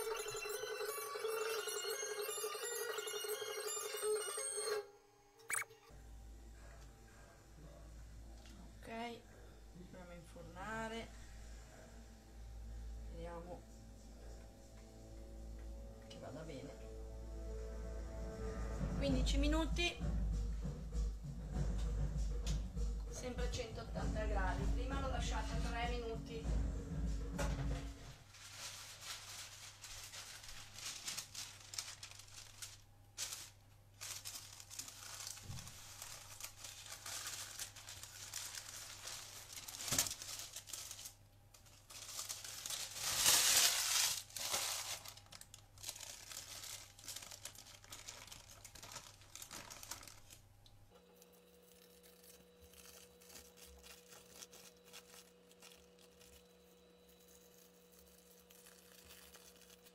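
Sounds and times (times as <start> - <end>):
faint steady hum: 22.8 - 59.9
parchment paper crinkling: 28.2 - 50.5, 51.1 - 59.9.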